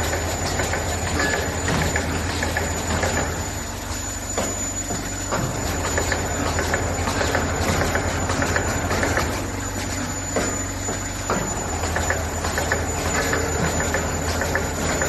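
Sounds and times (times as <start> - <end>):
press clacks and knocks: 0.0 - 3.4, 10.4 - 15.0
machine mechanical hum: 0.0 - 15.0
thin high whine: 0.0 - 15.0.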